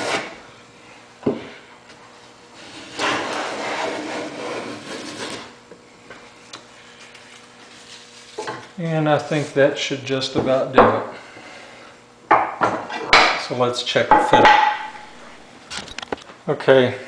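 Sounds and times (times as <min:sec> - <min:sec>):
hand plane cutting wood: 0:00.0 - 0:00.3, 0:02.6 - 0:05.6.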